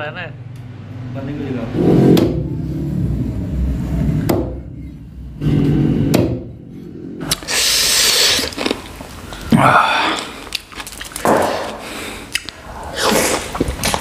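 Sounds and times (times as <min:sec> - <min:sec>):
hands squishing wet food: 0:07.3 - 0:14.0.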